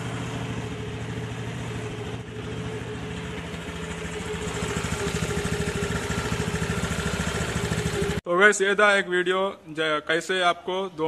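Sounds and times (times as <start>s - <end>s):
scooter engine idling: 0.0s - 8.2s.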